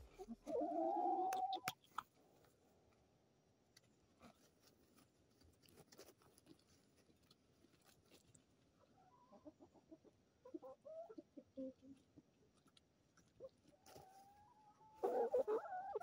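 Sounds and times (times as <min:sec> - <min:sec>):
hens clucking: 0:00.0 - 0:02.0, 0:08.8 - 0:12.3, 0:13.4 - 0:16.0.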